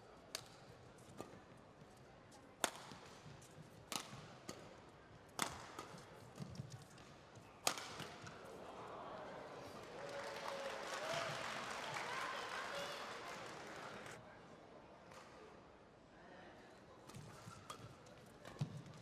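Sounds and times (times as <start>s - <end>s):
rackets striking shuttlecock: 2.6s - 3.2s, 3.9s - 4.7s, 5.4s - 6.6s, 7.6s - 8.4s.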